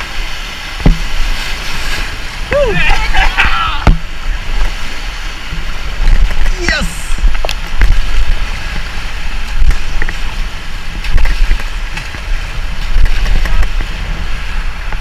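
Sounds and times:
river water rushing: 0.0 - 15.0
wind buffeting microphone: 0.0 - 15.0
sharp knocks: 0.8 - 1.2, 3.8 - 4.1.

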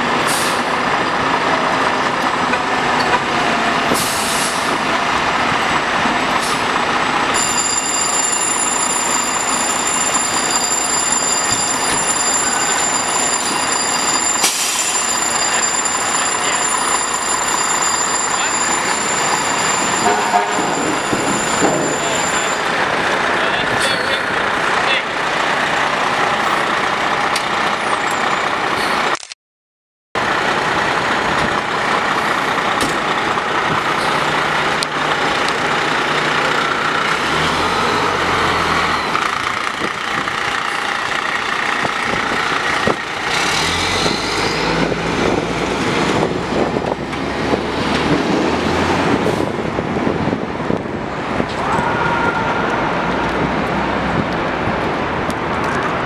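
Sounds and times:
fire truck diesel engine: 0.0 - 29.2, 30.2 - 51.7, 52.4 - 56.0
city traffic noise: 0.0 - 29.4, 30.2 - 56.0
siren wailing: 7.4 - 22.6.

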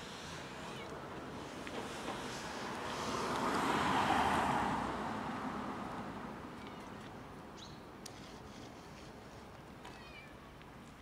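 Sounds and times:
car passing: 0.1 - 6.6.

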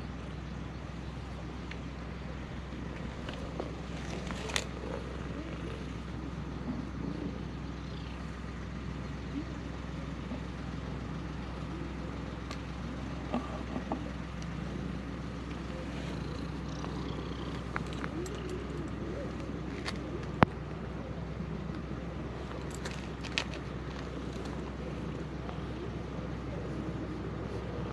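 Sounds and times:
low outdoor rumble: 0.0 - 27.9
cat purring: 2.8 - 8.5, 9.3 - 20.6.

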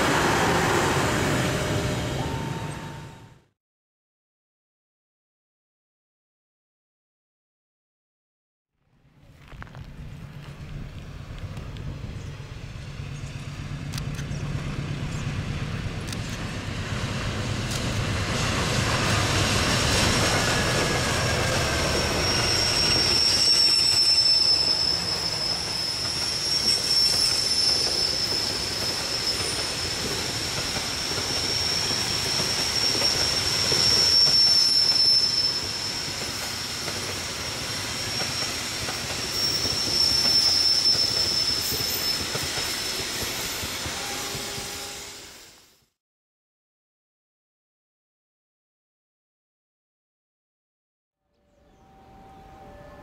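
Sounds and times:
wheels squealing on curved track: 20.3 - 45.4.

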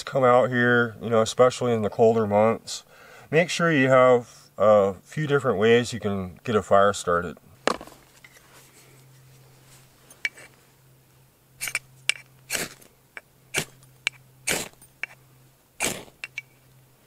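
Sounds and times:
tinder snapping and scraping: 11.6 - 12.9, 13.5 - 15.2, 15.8 - 16.6.

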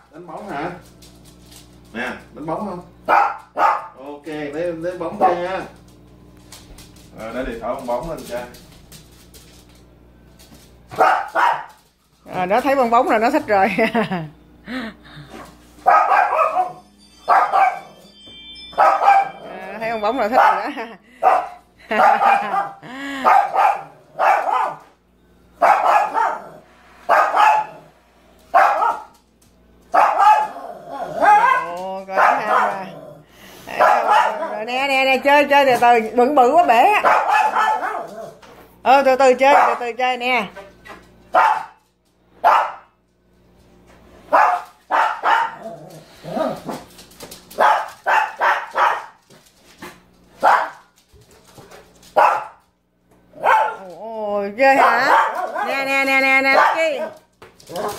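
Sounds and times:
small dog barking: 3.1 - 4.0, 10.9 - 11.8, 15.8 - 17.9, 18.8 - 19.5, 20.4 - 24.9, 25.6 - 27.9, 28.5 - 29.1, 29.9 - 32.9, 33.7 - 34.6, 37.0 - 38.4, 39.5 - 39.8, 41.3 - 41.8, 42.4 - 42.9, 44.3 - 45.7, 47.6 - 49.2, 50.4 - 50.9, 52.2 - 52.6, 53.4 - 54.0, 54.8 - 55.8, 56.5 - 57.9.

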